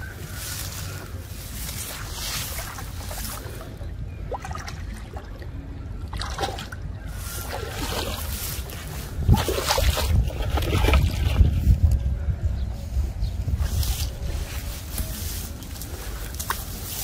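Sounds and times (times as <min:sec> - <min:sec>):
water trickling and splashing: 0:00.4 - 0:11.8.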